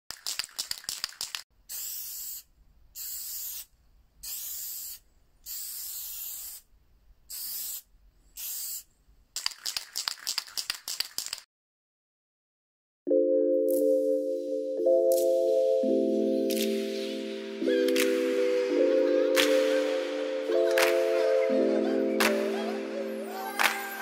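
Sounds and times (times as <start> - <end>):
spray can rattling: 0.1 - 6.6, 7.3 - 11.4
spray can hissing: 0.2 - 6.7, 7.3 - 11.4.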